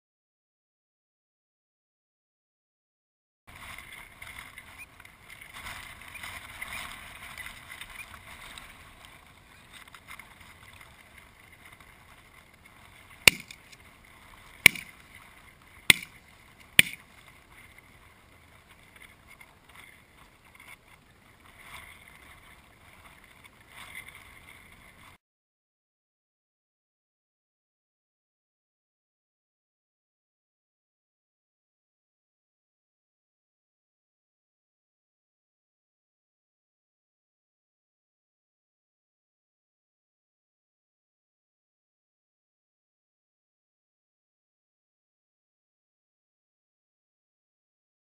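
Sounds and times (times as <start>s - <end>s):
shotgun shots: 13.3s - 13.5s.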